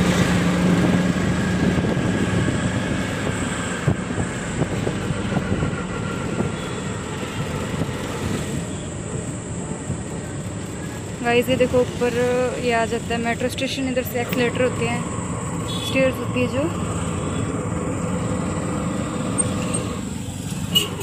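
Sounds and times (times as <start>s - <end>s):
auto-rickshaw engine running: 0.0s - 21.0s
road and wind noise: 0.0s - 21.0s.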